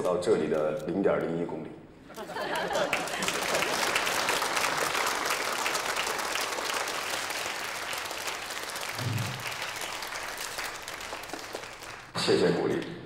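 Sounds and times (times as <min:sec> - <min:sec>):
audience applauding: 0:02.3 - 0:12.4.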